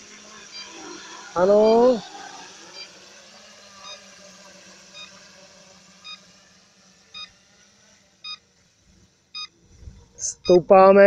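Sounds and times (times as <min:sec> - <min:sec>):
faint steady hum: 0:00.0 - 0:11.0
electronic multi-tone beeps: 0:01.4 - 0:02.1, 0:03.8 - 0:04.1, 0:06.0 - 0:06.2, 0:08.2 - 0:08.4.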